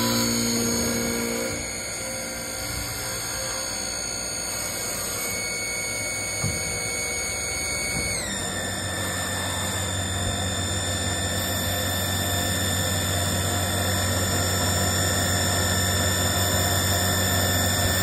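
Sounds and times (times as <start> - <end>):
wood lathe cutting dowel: 0.0 - 5.4
high lathe whines: 0.0 - 18.0.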